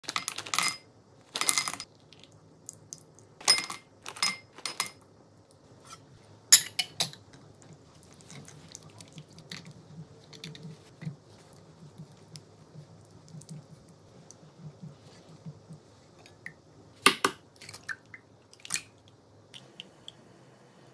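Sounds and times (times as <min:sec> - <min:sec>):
spatula stirring wet chocolate: 0:07.3 - 0:16.4.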